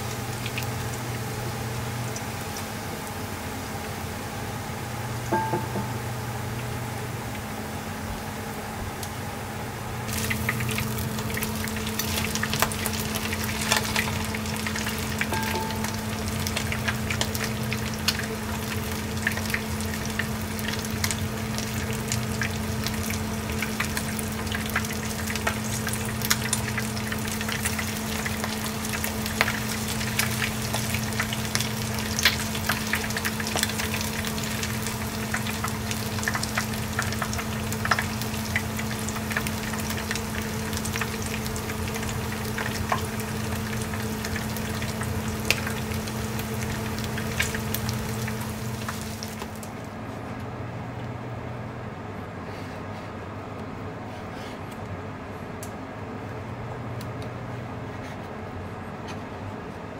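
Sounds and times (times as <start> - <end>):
steady low hum: 0.0 - 59.9
food sizzling in hot oil: 10.0 - 49.7.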